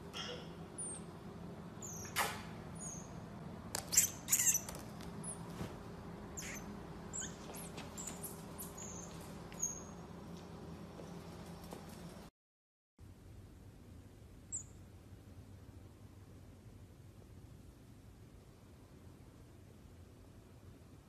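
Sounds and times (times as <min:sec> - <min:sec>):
marmoset chirps and squeaks: 0:00.2 - 0:01.1, 0:01.8 - 0:02.2, 0:02.8 - 0:03.2, 0:03.8 - 0:05.4, 0:06.4 - 0:10.0, 0:14.5 - 0:14.8.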